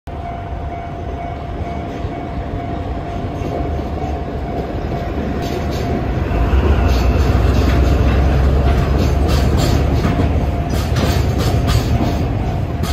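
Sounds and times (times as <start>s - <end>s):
diesel locomotive engine rumble: 0.1s - 12.9s
train wheel clicks: 4.6s - 12.9s.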